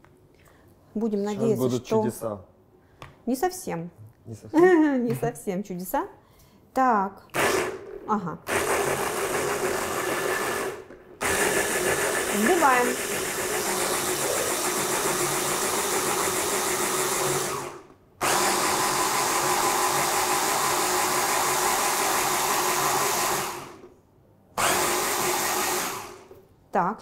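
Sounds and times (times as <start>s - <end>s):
hand blender whirring: 7.3s - 23.9s, 24.6s - 26.4s.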